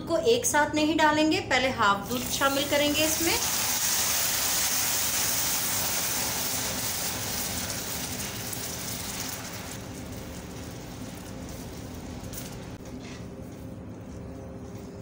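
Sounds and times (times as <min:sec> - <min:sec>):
milk sizzling in hot pan: 0:02.0 - 0:12.8.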